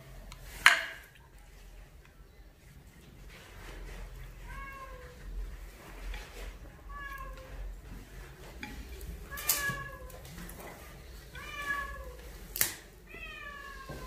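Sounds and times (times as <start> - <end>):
cat meowing: 4.4 - 5.2, 6.8 - 7.6, 9.3 - 10.2, 11.4 - 12.2, 13.0 - 14.0.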